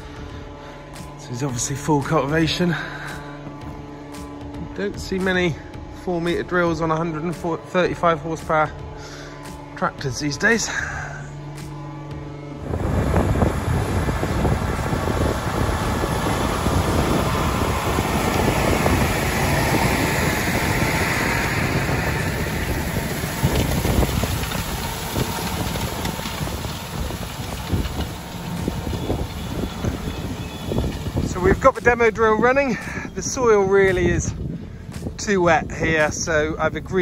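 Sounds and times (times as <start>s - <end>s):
tractor engine under load: 12.6s - 34.3s.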